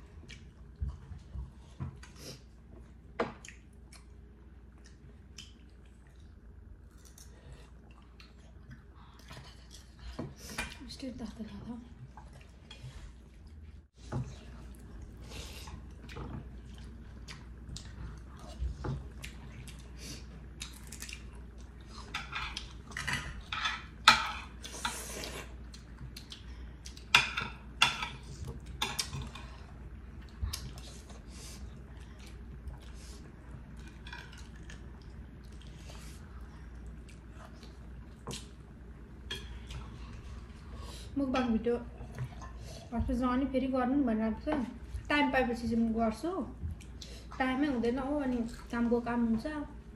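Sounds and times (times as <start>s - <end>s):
chewing and mouth clicks: 3.4s - 10.0s, 20.5s - 21.8s, 24.6s - 27.1s, 31.9s - 38.7s.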